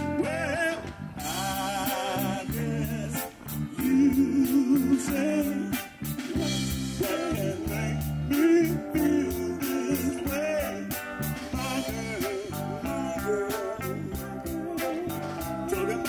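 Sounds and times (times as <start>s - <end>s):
drum kit hi-hat beat: 0.0s - 16.0s
electric bass: 0.0s - 16.0s
electric guitar: 0.0s - 16.0s
man singing: 0.0s - 16.0s.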